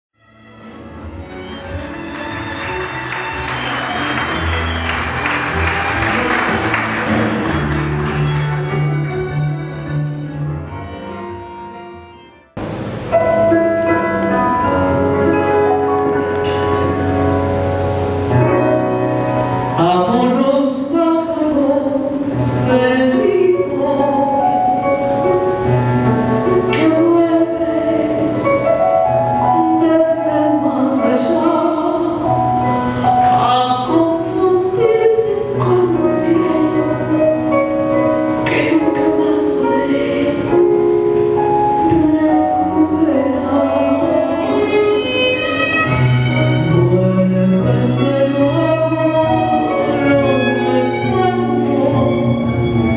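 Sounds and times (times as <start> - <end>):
instrumental accompaniment: 0.2 - 52.9
woman singing into a microphone: 19.8 - 25.4, 26.6 - 28.7, 29.4 - 32.4, 33.2 - 37.3, 38.4 - 41.0, 41.7 - 45.4, 46.7 - 52.5.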